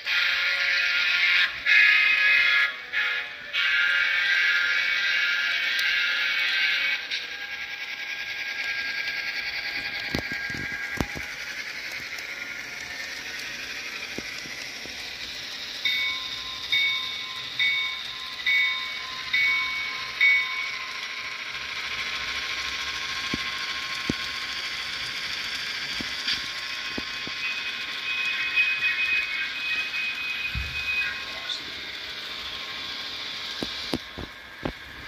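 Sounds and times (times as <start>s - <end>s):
model locomotive diesel engine sound: 0.0s - 35.0s
wheel noise on track: 3.0s - 35.0s
locomotive bell ringing: 14.9s - 22.3s.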